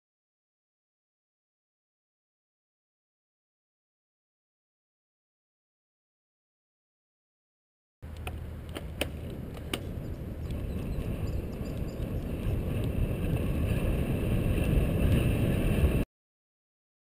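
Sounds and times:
bicycle rolling on pavement: 8.0s - 16.0s
sharp clicks: 8.1s - 10.6s
wind rushing over microphone: 8.5s - 16.1s.

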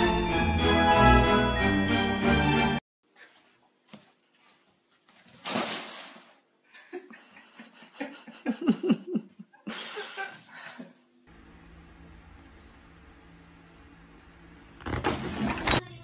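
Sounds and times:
person laughing: 6.7s - 11.0s.

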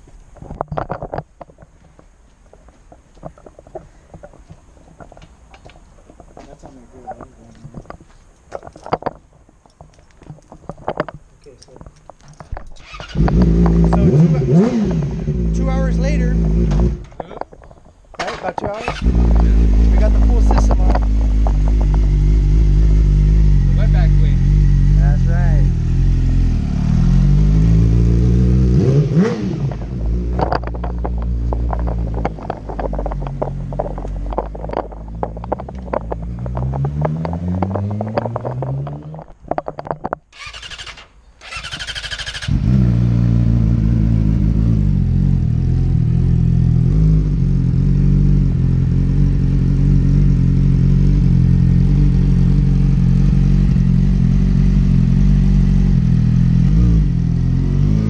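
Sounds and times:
exhaust cracks and pops: 0.0s - 22.4s, 29.5s - 43.0s
motorcycle engine revving: 12.7s - 17.2s, 18.7s - 39.4s, 40.3s - 58.0s
starter motor whirring: 40.3s - 42.8s.

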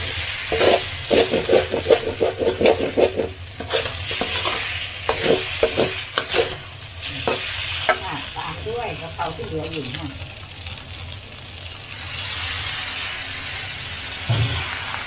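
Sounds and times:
metal spatula scraping a wok: 0.0s - 8.1s
food sizzling in a pan: 0.0s - 15.0s.

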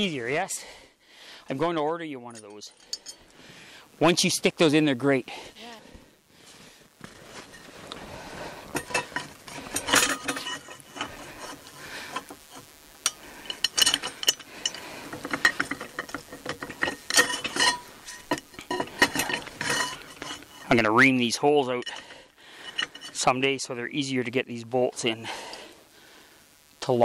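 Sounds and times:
metal bolts clinking and scraping: 2.3s - 3.3s, 8.7s - 23.6s.

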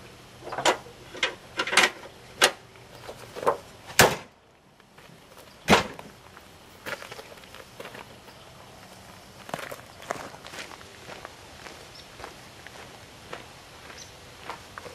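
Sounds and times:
car hood slamming shut: 4.0s - 4.3s, 5.7s - 6.0s.

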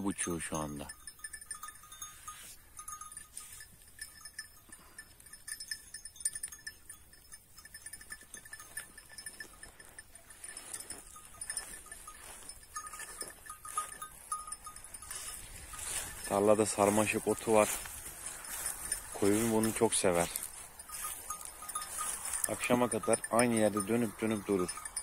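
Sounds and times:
sheep bells clinking: 0.0s - 25.0s
sheep cropping grass: 8.5s - 23.0s.

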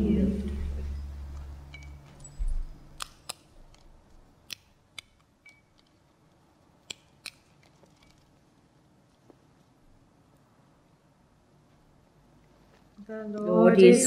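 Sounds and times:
vessels clicking and clinking: 0.5s - 8.4s.

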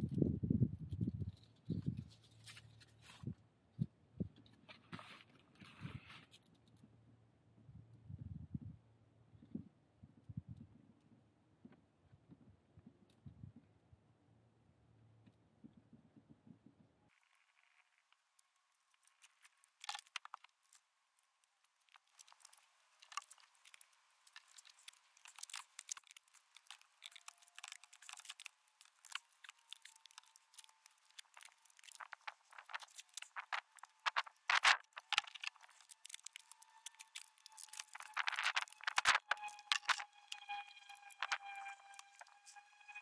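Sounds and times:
fabric bag rustling and crinkling: 22.0s - 42.6s.

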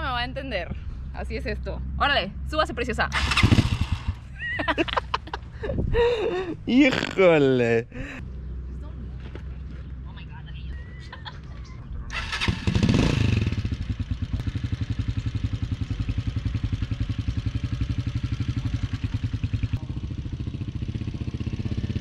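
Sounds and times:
small motorcycle engine: 3.1s - 4.3s, 12.1s - 22.0s.

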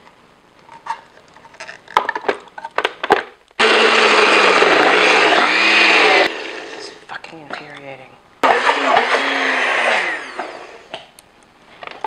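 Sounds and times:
blender motor running: 3.6s - 7.0s, 8.4s - 10.9s.

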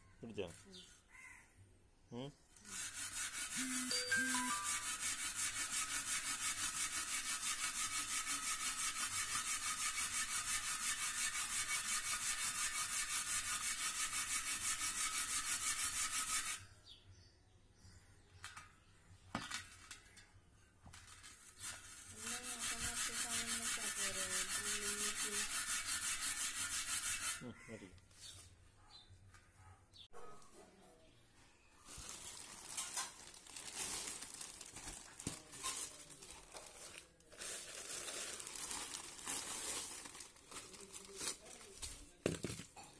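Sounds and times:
brush scrubbing rusted metal rim: 2.6s - 16.6s, 21.2s - 27.4s.

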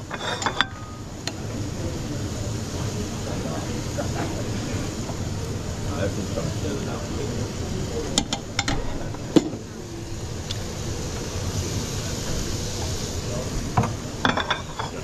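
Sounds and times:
steady hum: 0.0s - 15.0s
kitchenware knocks and clinks: 0.2s - 0.9s, 13.8s - 15.0s.

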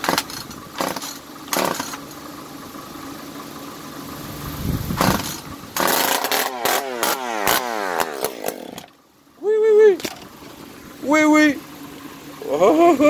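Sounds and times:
chainsaw starter rope pulls: 0.0s - 2.0s, 5.0s - 8.9s.

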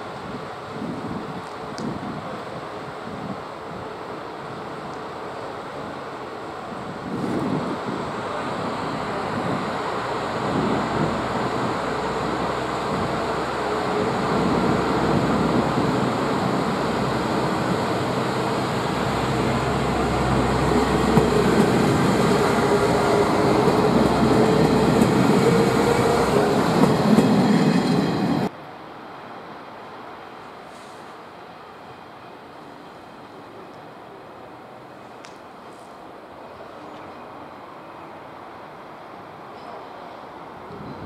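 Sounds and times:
train wheels on rails: 0.0s - 28.6s
diesel railcar engine: 0.0s - 41.0s.

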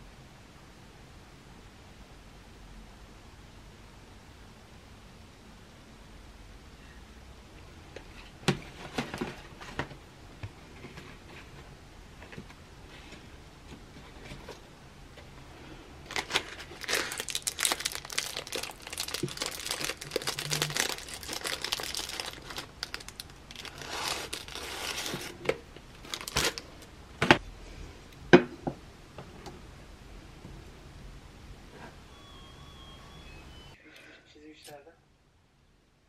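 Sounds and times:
cardboard box and plastic crinkling: 16.0s - 26.7s.

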